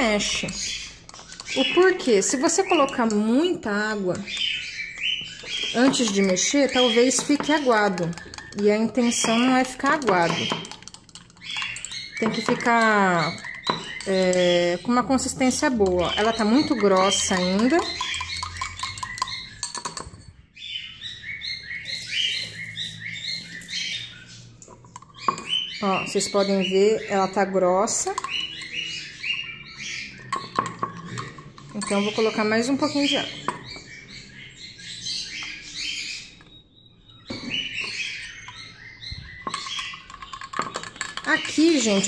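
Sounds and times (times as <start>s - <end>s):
small birds chirping: 0.0s - 42.0s
metal spoon clinking against cup: 0.3s - 3.6s, 5.4s - 20.4s, 28.0s - 29.4s, 30.3s - 32.6s, 39.4s - 42.0s.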